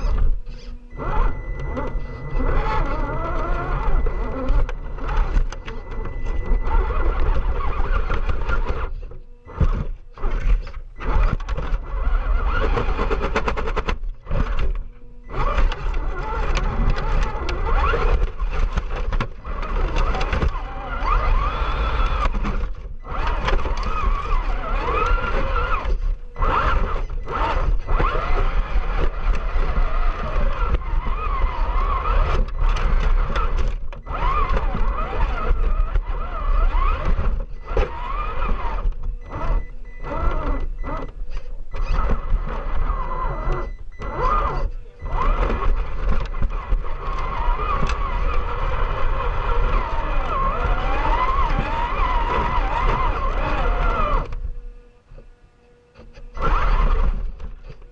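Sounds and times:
toy car motor whining: 0.0 - 55.0, 55.9 - 57.9.

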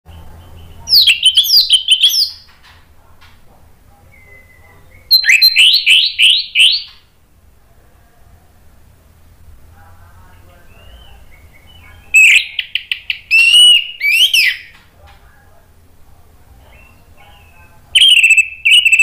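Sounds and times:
bird singing whistled notes: 0.1 - 2.5, 4.1 - 7.0, 10.7 - 14.7, 16.7 - 19.0.

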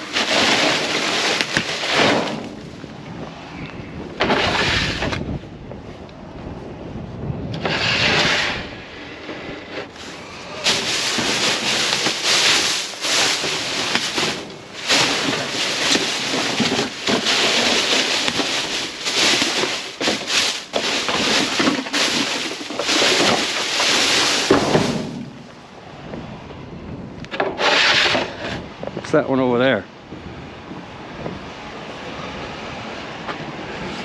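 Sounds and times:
plastic bags rustling: 0.0 - 2.8, 9.8 - 25.5.

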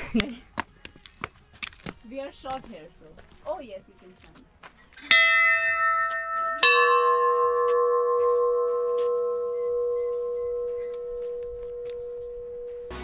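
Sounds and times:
higher-pitched bell ringing: 5.1 - 13.0
large temple bell ringing: 5.1 - 13.0.

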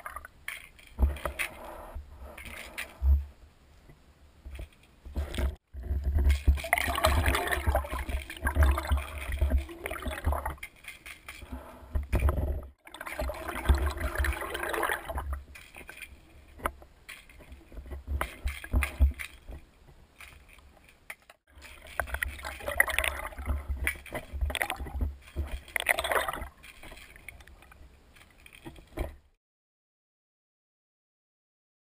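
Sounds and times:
muffled underwater water sloshing: 4.5 - 29.3.

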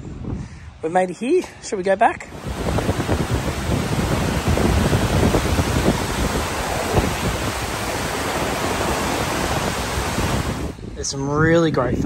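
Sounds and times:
floodwater rushing: 2.3 - 10.8
wind buffeting microphone: 2.3 - 12.0.

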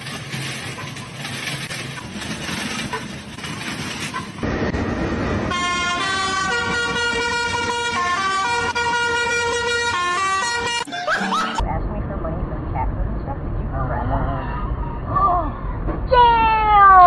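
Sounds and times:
rolling rattling noise: 0.0 - 12.7
traffic noise: 0.0 - 17.0
fire engine horn blaring: 5.5 - 11.6.

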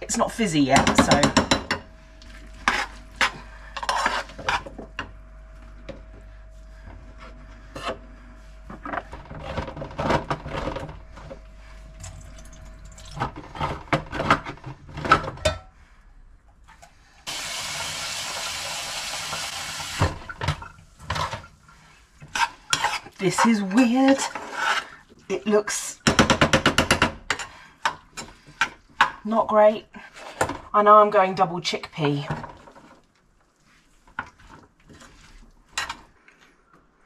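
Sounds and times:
kitchen tap running: 17.3 - 20.7.

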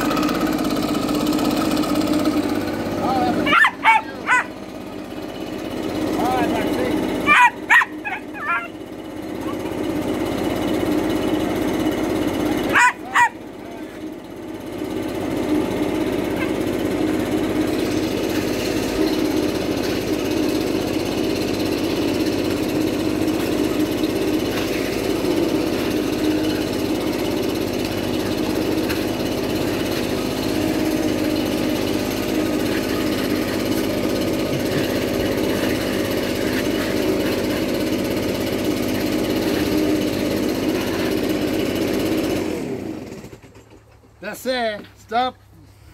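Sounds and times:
leaf blower running: 0.0 - 45.9.

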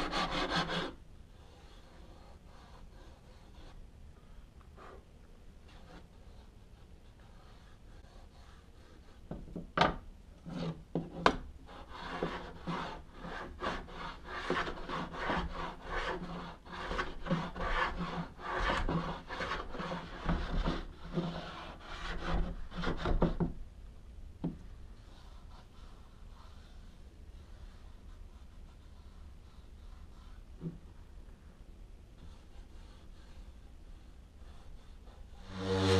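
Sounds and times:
hand tool scraping wood: 0.0 - 1.0, 10.5 - 23.4, 35.4 - 35.9.

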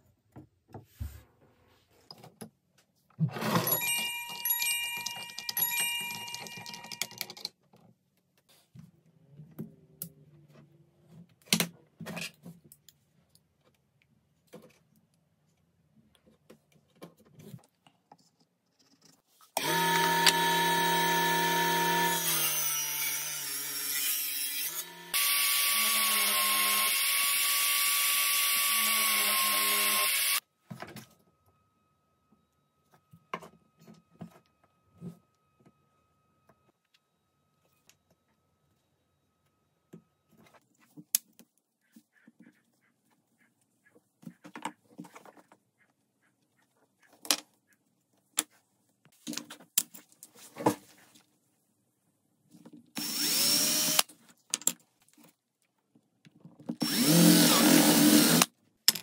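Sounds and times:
wooden parts knocking and clicking: 4.9 - 7.8
electric power tool running: 19.6 - 23.9, 24.6 - 30.4, 53.0 - 54.0, 56.8 - 58.5.

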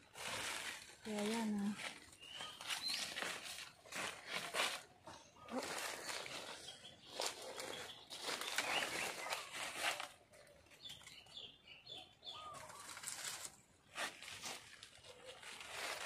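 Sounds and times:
leaves and vines rustling: 0.0 - 11.4, 12.3 - 16.0
bird chirps: 2.1 - 3.6, 5.1 - 13.0.

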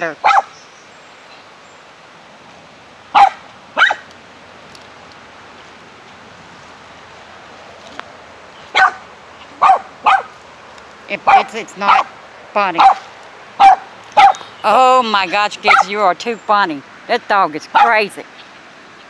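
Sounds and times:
faint steady hiss: 0.0 - 19.0
small dog barking: 0.2 - 0.6, 3.1 - 4.1, 8.7 - 10.3, 11.2 - 12.2, 12.8 - 14.5, 15.6 - 15.9, 17.7 - 18.0.

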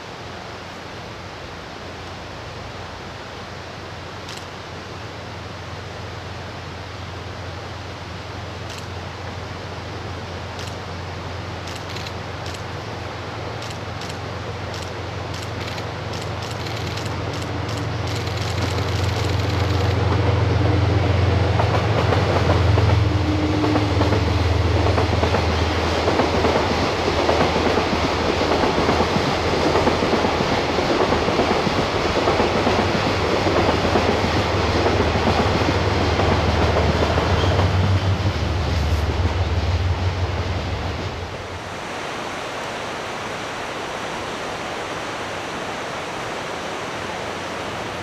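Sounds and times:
locomotive engine drone: 5.8 - 41.7
train wheels rumbling on rails: 10.5 - 41.6.

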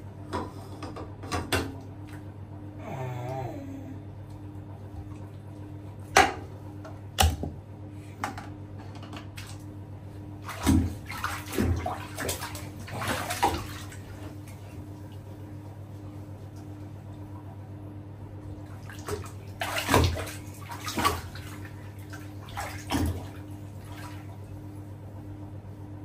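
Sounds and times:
steady low hum: 0.0 - 26.0
water splashing in a bathtub: 4.3 - 6.5, 9.1 - 17.8, 18.4 - 25.1.

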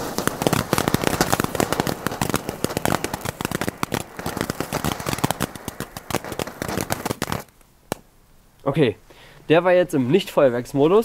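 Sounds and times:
firework fountain crackling: 0.0 - 8.1.

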